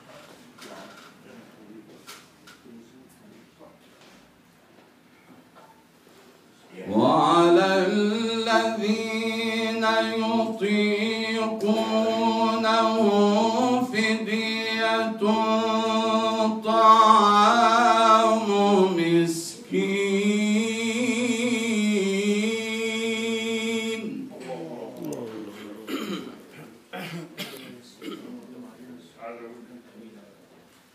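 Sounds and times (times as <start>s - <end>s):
man chanting recitation: 6.7s - 25.9s.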